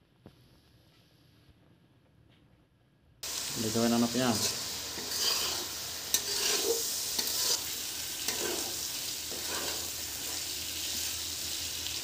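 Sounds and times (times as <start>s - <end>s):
frying sizzle: 3.2s - 12.0s
metal spatula scraping a pan: 4.1s - 10.6s.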